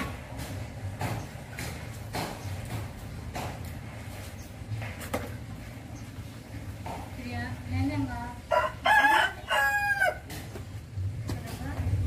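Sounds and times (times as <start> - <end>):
rooster crowing: 8.5 - 10.3.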